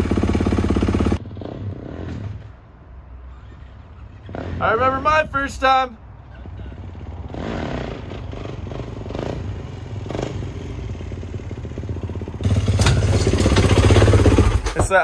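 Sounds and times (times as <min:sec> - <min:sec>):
dirt bike engine revving: 0:00.0 - 0:02.5, 0:06.9 - 0:14.9.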